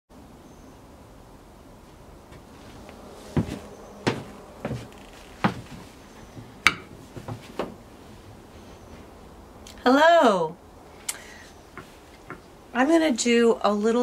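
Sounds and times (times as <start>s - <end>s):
footsteps thumping: 2.3s - 7.8s.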